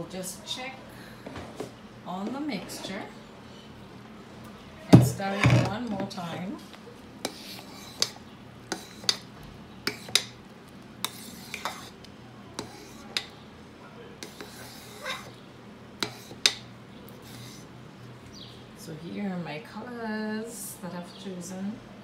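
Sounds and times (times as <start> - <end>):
spatula scraping a pot: 7.2 - 10.4, 11.0 - 12.0, 12.6 - 13.3, 14.2 - 15.4, 16.0 - 17.7.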